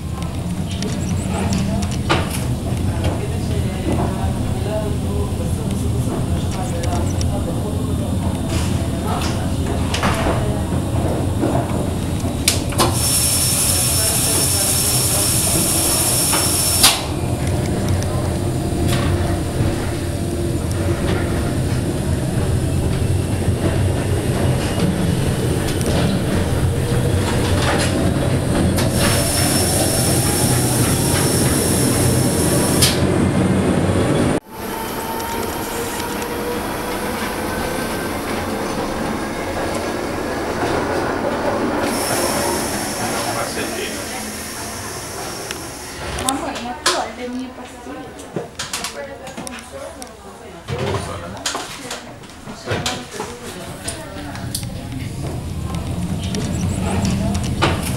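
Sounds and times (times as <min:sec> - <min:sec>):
rumble of railcar running gear: 0:00.0 - 0:46.7, 0:51.4 - 0:57.9
high-pitched squeal: 0:34.5 - 0:39.6.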